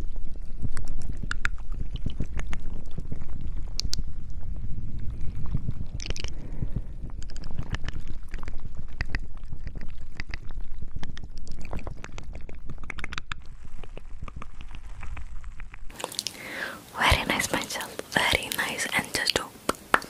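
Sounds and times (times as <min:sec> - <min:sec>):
small clicks and crackles: 0:00.0 - 0:06.4, 0:07.0 - 0:16.4.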